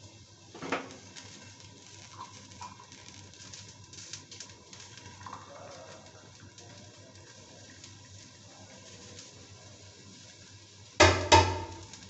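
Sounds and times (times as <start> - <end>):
food crackling in covered pan: 0.0 - 12.0.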